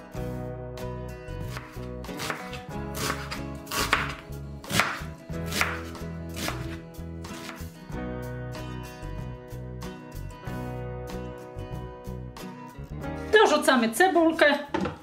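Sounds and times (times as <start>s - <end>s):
background music: 0.0s - 15.0s
knife slicing onion on board: 1.4s - 7.6s.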